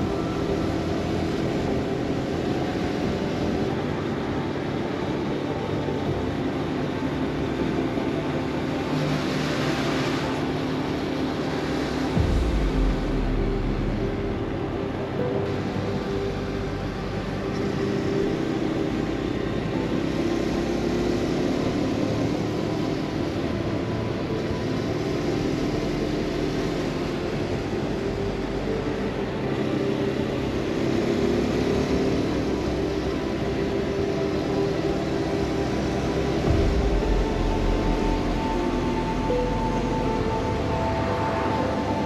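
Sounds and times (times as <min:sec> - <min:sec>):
wind rushing: 0:12.2 - 0:15.9.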